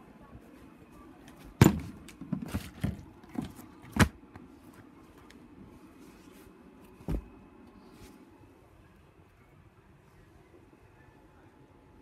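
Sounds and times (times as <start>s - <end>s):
quiet room noise: 0.0s - 12.0s
thump: 7.0s - 7.4s.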